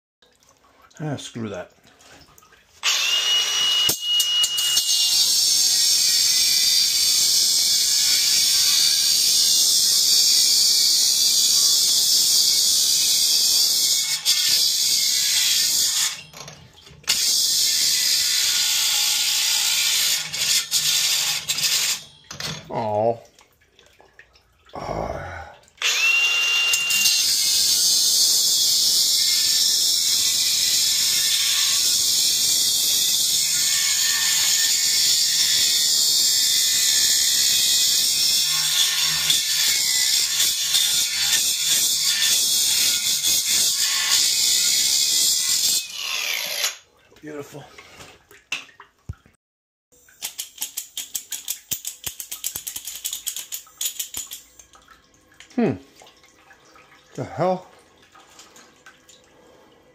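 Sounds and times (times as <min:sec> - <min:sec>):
angle grinder cutting copper pipe: 0:02.8 - 0:22.2, 0:25.8 - 0:46.8.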